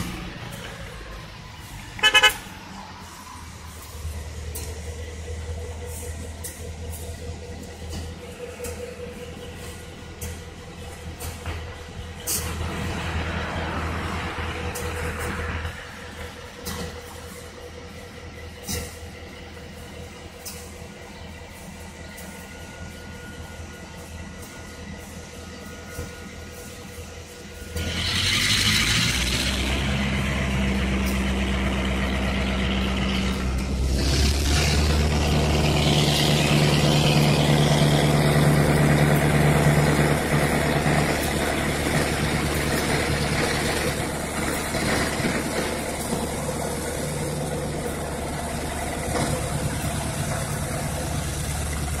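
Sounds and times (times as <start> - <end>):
locomotive diesel engine droning: 0.0 - 52.0.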